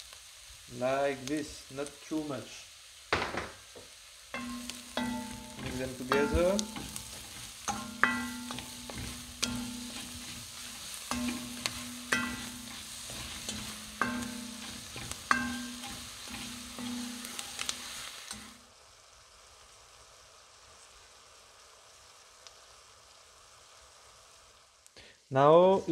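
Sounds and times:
faint hiss: 0:00.0 - 0:25.9
onions sizzling: 0:00.0 - 0:25.9
wooden spatula scraping a pot: 0:04.4 - 0:18.6.

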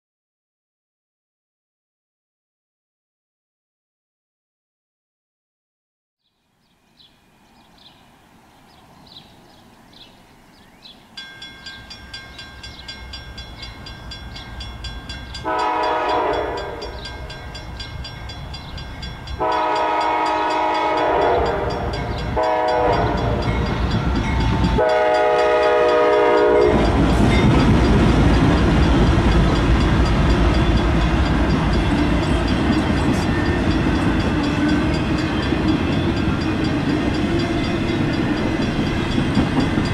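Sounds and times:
steady high ringing: 0:11.1 - 0:39.9
train rumbling and clattering: 0:11.2 - 0:39.9
locomotive horn blasts: 0:15.4 - 0:17.4, 0:19.4 - 0:23.8, 0:24.6 - 0:27.6.

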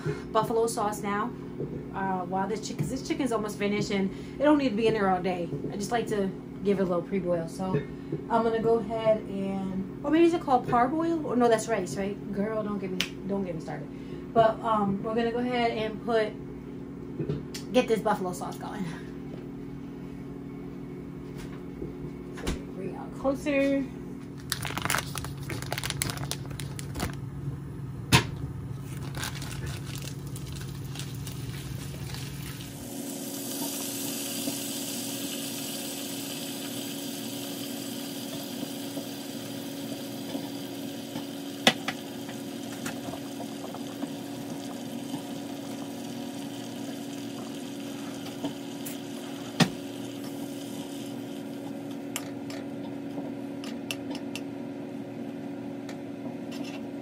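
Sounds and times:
liquid bubbling in a pot: 0:29.5 - 0:52.1.

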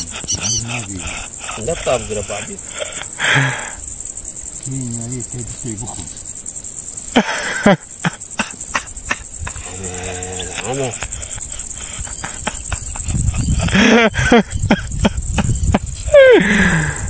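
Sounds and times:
person's voice: 0:00.0 - 0:02.8
crickets chirping: 0:00.0 - 0:17.0.

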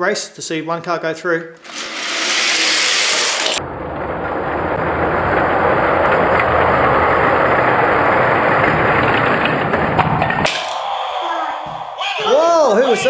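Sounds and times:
toy cars rolling on plastic track: 0:01.6 - 0:03.6, 0:04.8 - 0:10.7.

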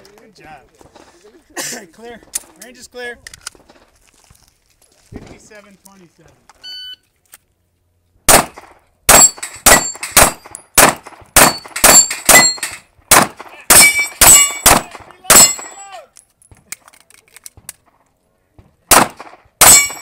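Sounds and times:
pistol shots: 0:08.3 - 0:15.8, 0:18.9 - 0:20.0
steel targets clanging: 0:09.1 - 0:10.8, 0:11.4 - 0:12.9, 0:13.7 - 0:15.9, 0:19.6 - 0:20.0.

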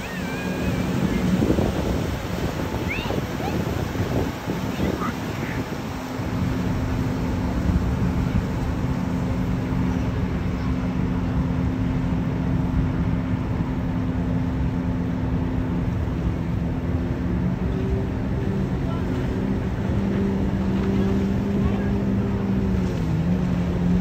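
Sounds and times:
boat engine humming: 0:00.0 - 0:24.0
water rushing: 0:00.0 - 0:24.0
wind: 0:00.0 - 0:24.0.

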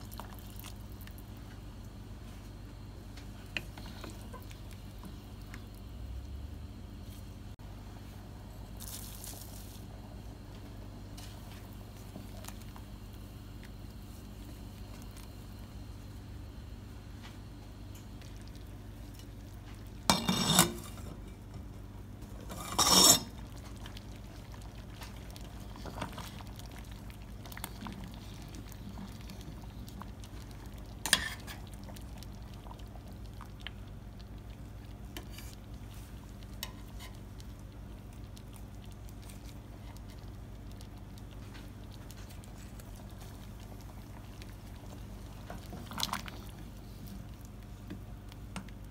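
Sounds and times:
steady low hum: 0:00.0 - 0:48.9
wooden spoon scraping metal pot: 0:20.1 - 0:21.2, 0:22.4 - 0:23.4.

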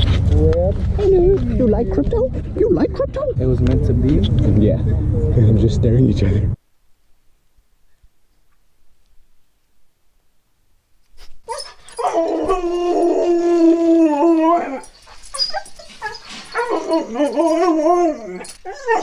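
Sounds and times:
dog howling: 0:11.5 - 0:19.0.

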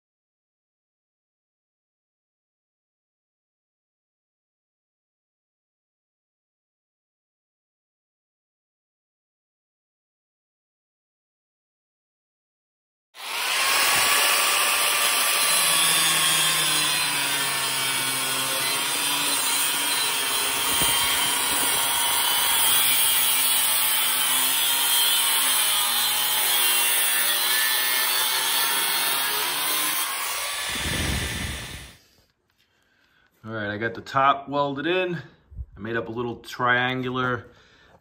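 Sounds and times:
angle grinder cutting steel: 0:13.2 - 0:32.0.

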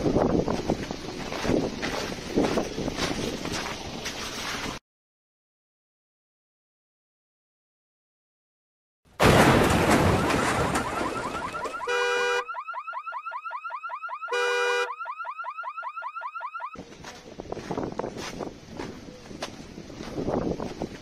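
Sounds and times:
wind noise: 0:00.0 - 0:04.8, 0:16.8 - 0:21.0
ice slab crashing onto car: 0:09.2 - 0:11.8
car alarm blaring and chirping: 0:09.9 - 0:16.8.

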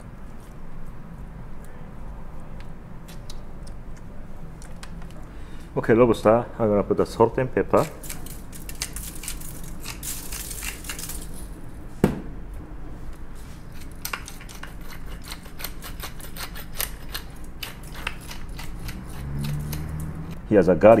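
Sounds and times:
grinders crunching and clicking: 0:07.7 - 0:11.5, 0:13.7 - 0:20.4.

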